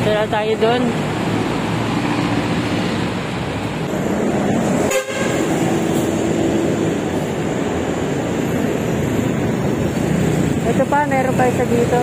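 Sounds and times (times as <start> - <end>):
road traffic passing: 0.0 - 12.0
faint vehicle horn: 4.9 - 5.5.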